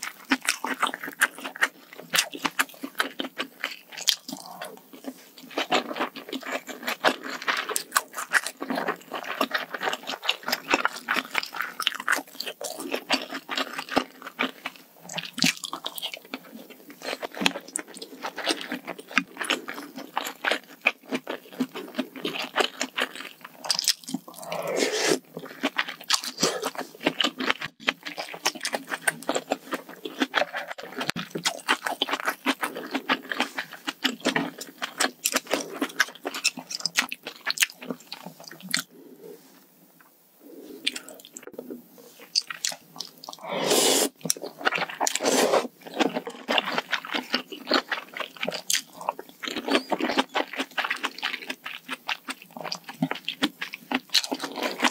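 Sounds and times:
wet chewing and crunching: 0.0 - 39.0, 40.4 - 54.9
loud slurps: 24.4 - 25.3, 43.3 - 44.2, 45.1 - 45.7.

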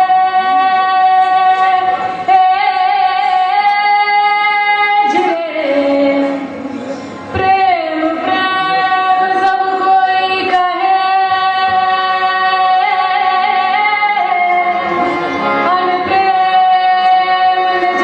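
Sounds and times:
woman singing folk song: 0.0 - 6.6, 7.3 - 15.0, 15.6 - 18.0
accompanying instruments: 0.0 - 18.0.

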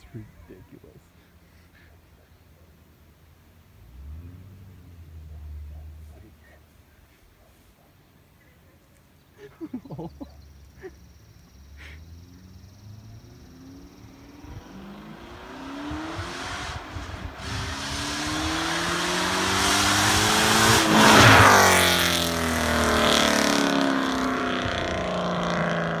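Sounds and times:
car engine accelerating past: 3.7 - 6.6, 10.4 - 26.0.

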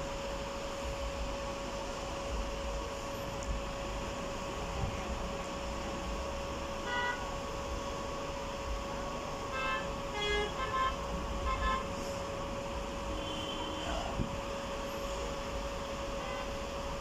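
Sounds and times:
car horns honking: 6.8 - 7.3, 9.5 - 11.9.

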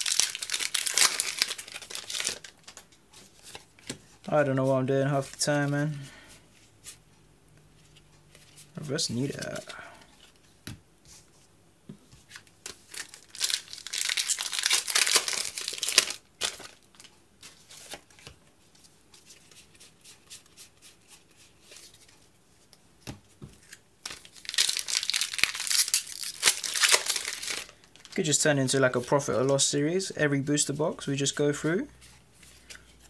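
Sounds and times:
foil wrapper crinkling and tearing: 0.0 - 2.6, 12.9 - 16.8, 24.1 - 28.2.

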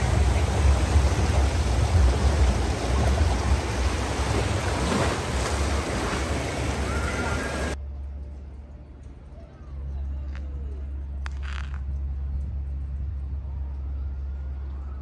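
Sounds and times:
rushing churning water: 0.0 - 7.8
wind buffeting microphone: 0.0 - 7.8.

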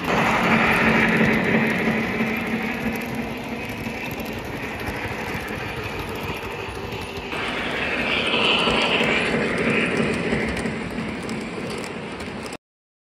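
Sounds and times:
steam hiss: 0.0 - 12.1
model train wheels rumbling: 0.0 - 12.6.

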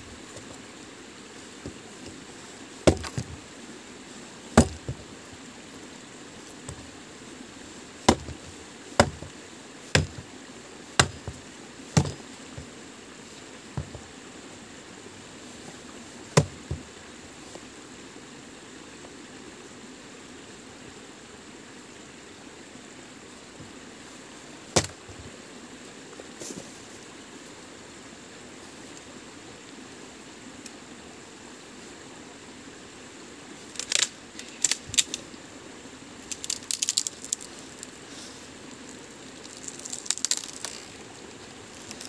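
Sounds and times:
steady background hiss: 0.0 - 42.0
wood being chopped: 2.8 - 3.4, 4.5 - 5.1, 6.7 - 6.9, 8.0 - 10.3, 11.0 - 12.7, 13.8 - 14.1, 16.3 - 16.9, 24.8 - 25.3, 39.9 - 40.9.

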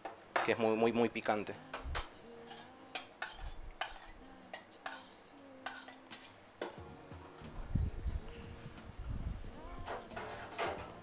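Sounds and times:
spoon stirring in metal bowl: 2.0 - 6.4.

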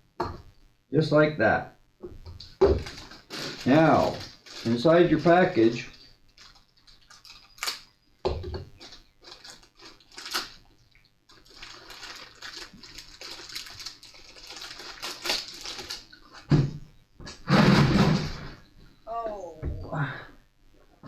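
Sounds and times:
plastic packaging crinkling: 2.4 - 16.5.

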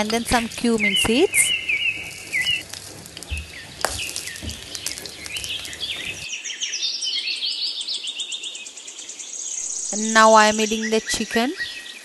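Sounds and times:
seeds crackling in hot oil: 0.0 - 6.3
birds chirping: 0.0 - 12.0.

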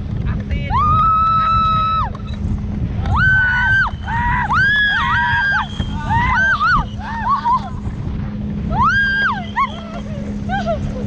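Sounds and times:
boat engine hum: 0.0 - 11.0
rush of wind and water: 0.0 - 11.0
people screaming and shrieking: 3.0 - 7.8, 8.7 - 11.0.

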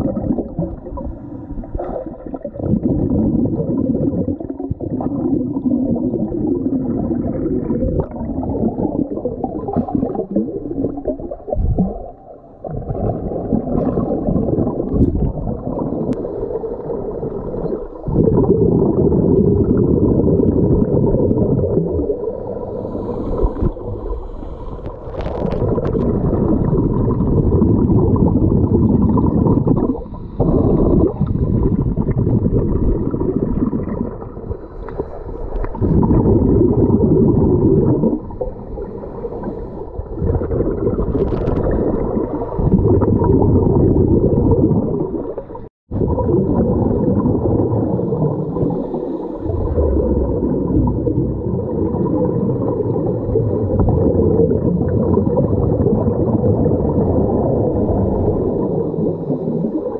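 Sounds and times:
underwater bubbles: 0.0 - 59.9
divers breathing underwater: 22.0 - 26.8, 29.3 - 33.2, 34.3 - 41.6, 47.9 - 50.6.

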